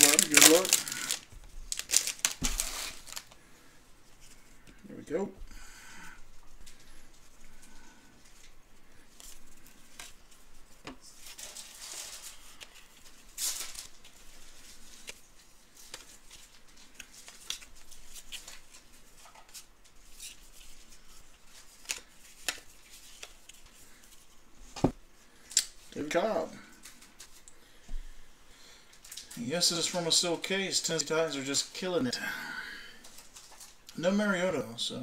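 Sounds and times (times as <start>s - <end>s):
card pack wrappers rustling: 0.0s - 3.4s, 11.2s - 24.2s.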